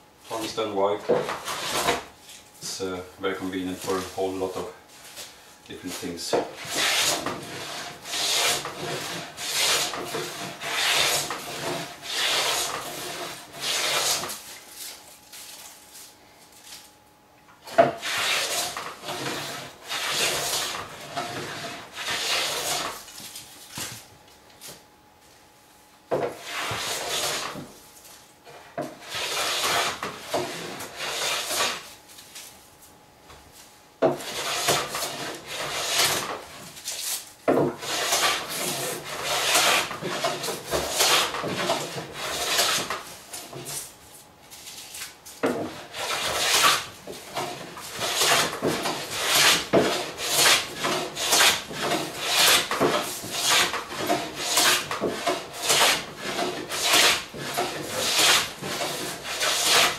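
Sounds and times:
hand plane shaving wood: 0.3s - 2.0s, 5.9s - 14.4s, 17.8s - 23.0s, 26.2s - 27.7s, 28.5s - 31.9s, 34.1s - 37.1s, 37.7s - 43.8s, 45.6s - 59.9s.

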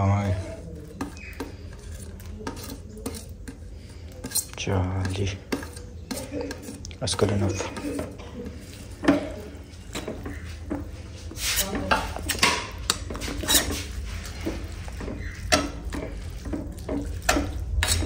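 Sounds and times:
ladle clinking and scraping pan: 4.2s - 18.0s.

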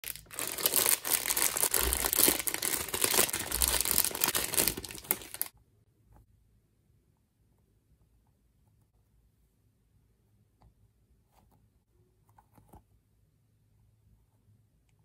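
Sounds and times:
plastic bag crinkling: 0.0s - 5.5s.

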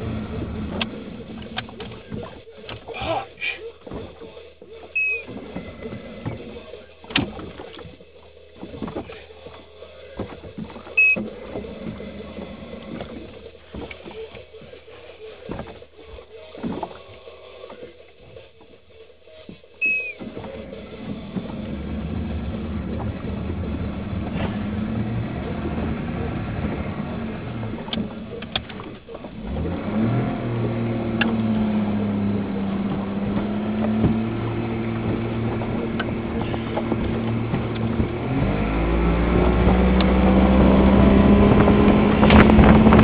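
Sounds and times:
car engine starting and revving: 0.0s - 2.6s, 5.0s - 8.0s, 10.1s - 14.7s, 19.8s - 43.0s.

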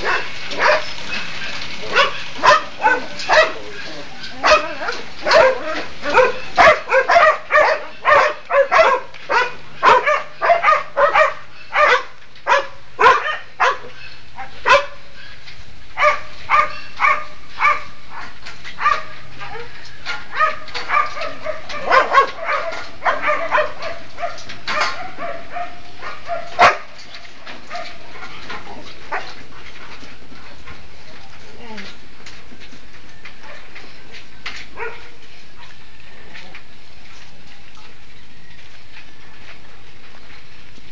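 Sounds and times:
dogs barking: 0.0s - 15.1s, 16.0s - 30.6s, 34.7s - 35.8s.

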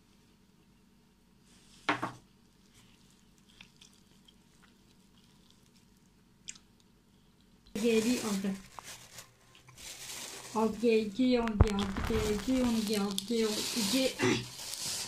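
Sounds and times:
dough squishing: 7.7s - 15.0s.

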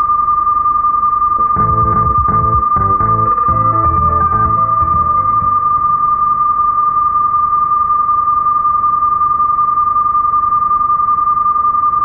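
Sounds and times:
steady test tone: 1.4s - 7.3s.

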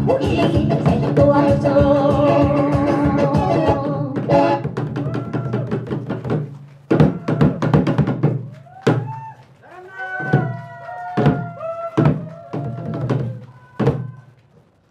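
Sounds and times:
music with held notes: 0.0s - 4.8s.

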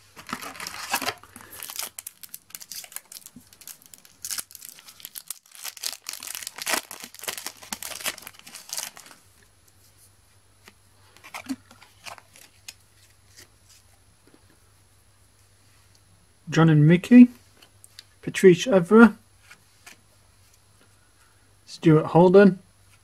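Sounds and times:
foil packet crinkling: 0.0s - 9.2s.

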